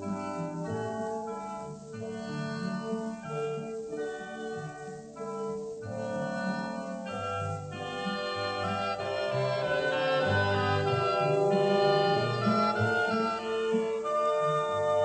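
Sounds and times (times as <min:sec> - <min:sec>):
orchestral music: 0:07.6 - 0:15.0.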